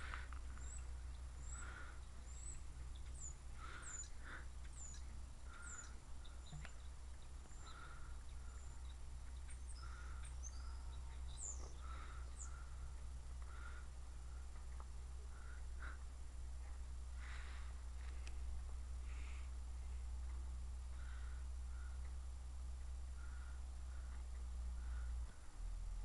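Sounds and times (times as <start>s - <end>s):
low repeating bird call: 0.0s - 14.4s, 20.9s - 22.3s, 23.1s - 25.5s
birds chirping: 0.0s - 25.6s
steady low hum: 0.0s - 26.0s.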